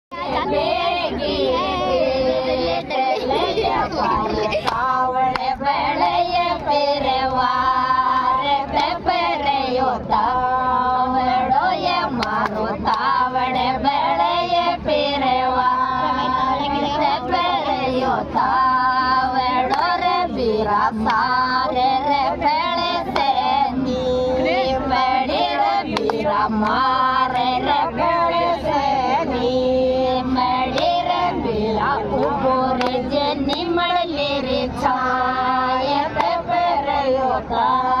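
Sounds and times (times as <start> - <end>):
women singing folk song: 0.1 - 38.0
sharp hand claps: 12.1 - 13.1, 25.9 - 26.8.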